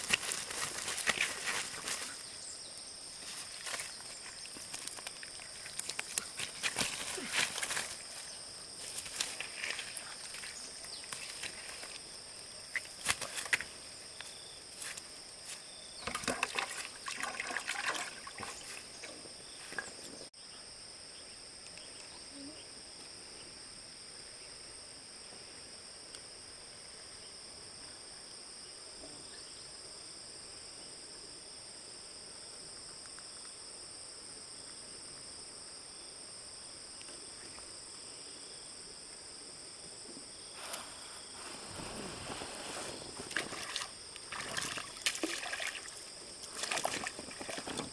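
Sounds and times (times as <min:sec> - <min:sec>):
insect chorus: 0:00.0 - 0:47.9.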